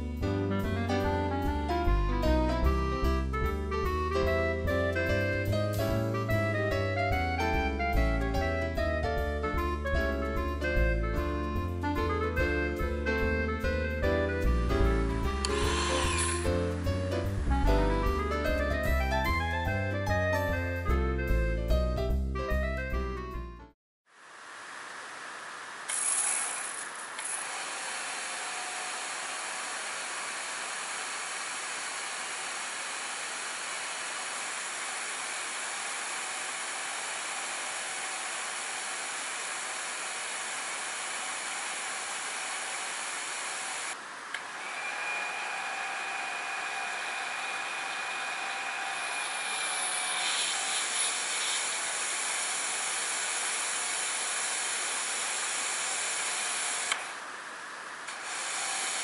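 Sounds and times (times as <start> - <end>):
motor and pump whine: 14.4 - 17.8, 24.3 - 59.0
pressure washer spraying: 15.5 - 16.5.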